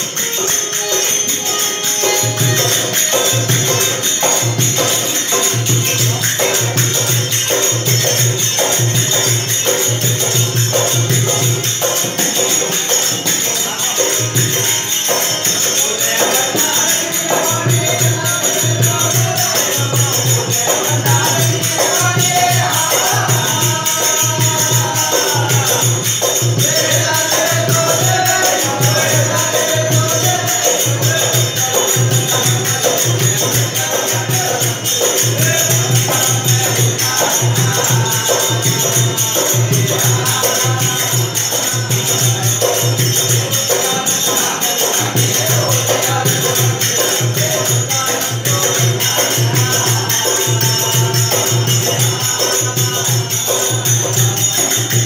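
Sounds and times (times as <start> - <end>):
high percussion shimmer: 0.0 - 55.0
steady drum beat: 14.2 - 55.0.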